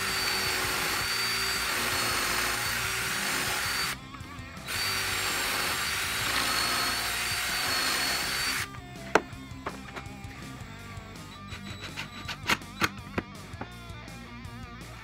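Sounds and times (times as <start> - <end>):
cordless drill boring wood: 0.0 - 9.3.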